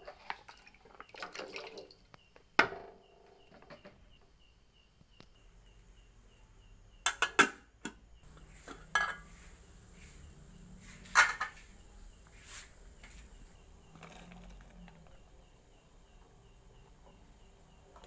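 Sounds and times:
pot lid clattering on pot: 8.7s - 9.3s, 11.1s - 11.6s.

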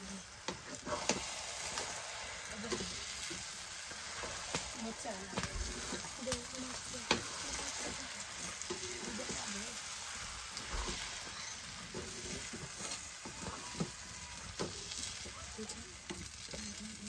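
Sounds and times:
metal fork scraping a pan: 0.0s - 2.0s, 5.4s - 15.2s
noodles sizzling in a pan: 0.0s - 17.0s.

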